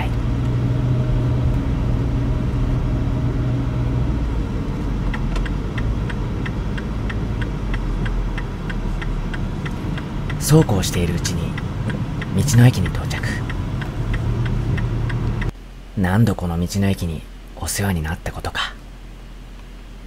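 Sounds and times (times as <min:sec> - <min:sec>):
turn signal ticking: 0:00.0 - 0:15.6
car engine and road rumble: 0:00.0 - 0:16.0.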